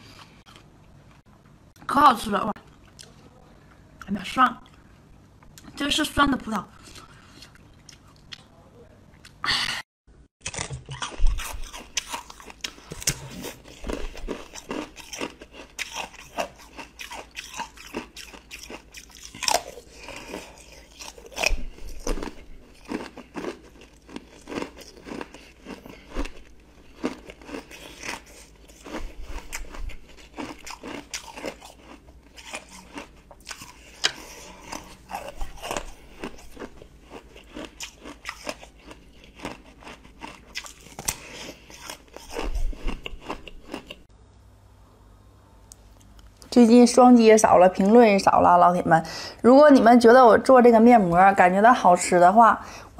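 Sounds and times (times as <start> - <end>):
chewing: 10.4 - 44.1.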